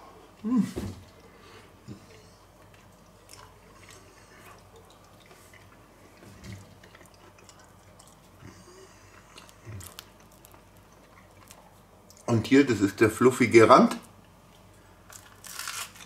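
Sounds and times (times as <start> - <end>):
chewing food: 1.1 - 12.3.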